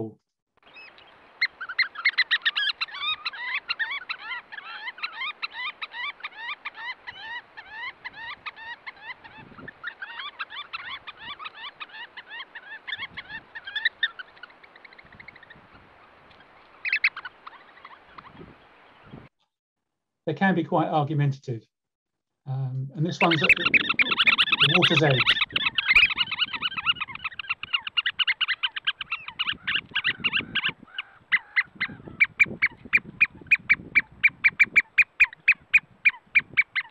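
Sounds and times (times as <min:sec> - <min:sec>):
oystercatchers piping: 0:00.0 - 0:19.3, 0:23.0 - 0:36.9.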